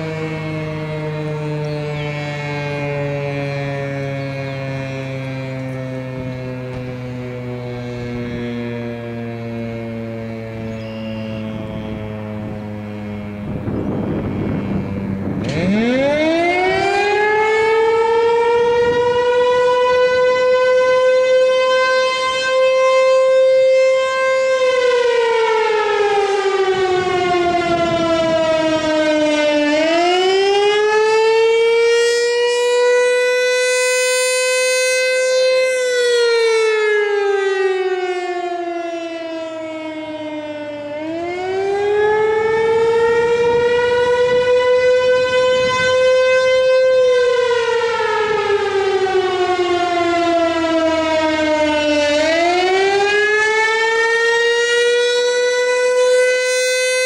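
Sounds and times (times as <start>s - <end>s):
mechanical warning siren wailing: 0.0s - 57.0s.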